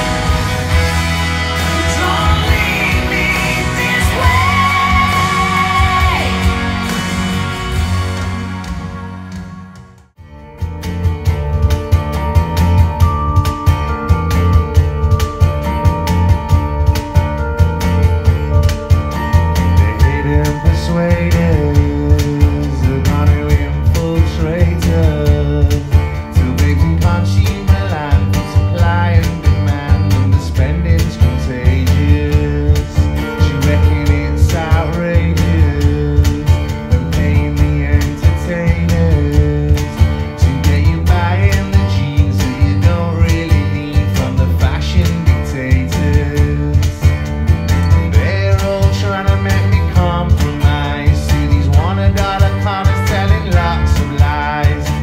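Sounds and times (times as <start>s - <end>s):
music with heavy bass over loudspeakers: 0.0s - 55.0s.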